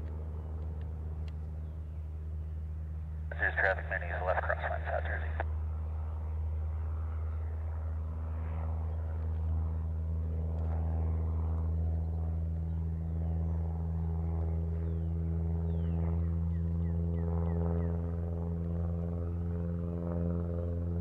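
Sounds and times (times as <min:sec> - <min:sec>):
propeller plane flying overhead: 0:00.0 - 0:21.0.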